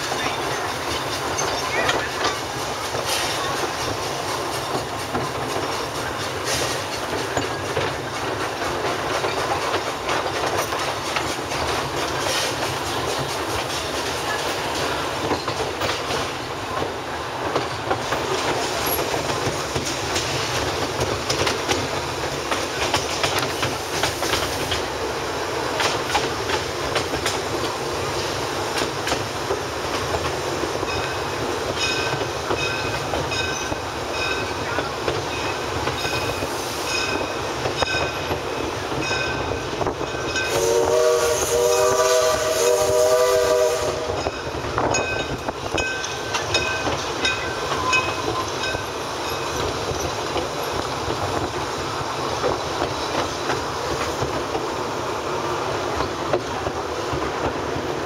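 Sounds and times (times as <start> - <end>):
train clicks and knocks: 0.0 - 58.0
train wheels rumbling on rail: 0.0 - 58.0.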